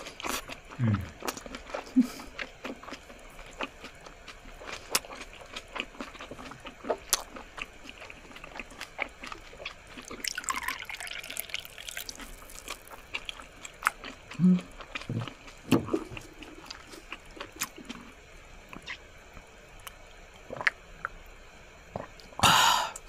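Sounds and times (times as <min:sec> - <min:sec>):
liquid pouring into glass: 0:10.2 - 0:12.6.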